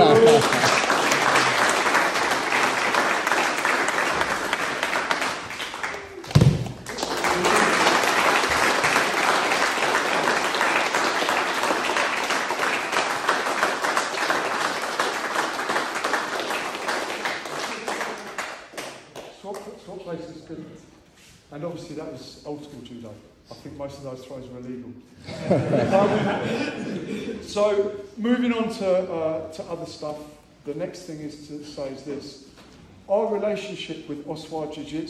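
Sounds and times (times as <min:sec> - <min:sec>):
group applauding: 0:00.0 - 0:19.7.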